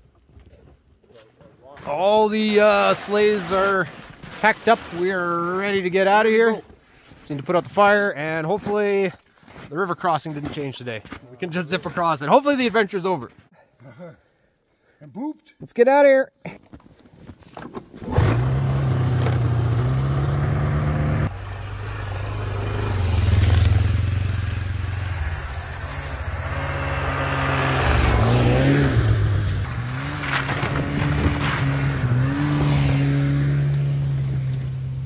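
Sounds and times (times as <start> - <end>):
snowmobile engines revving past: 1.9 - 6.4, 18.1 - 35.0
snowmobile engine pull-started: 17.9 - 21.2, 21.8 - 29.6.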